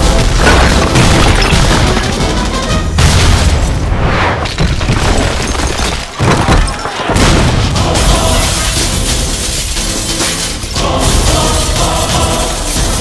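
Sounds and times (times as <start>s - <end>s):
dramatic background music: 0.0s - 4.0s, 7.2s - 13.0s
debris crashing: 0.0s - 13.0s.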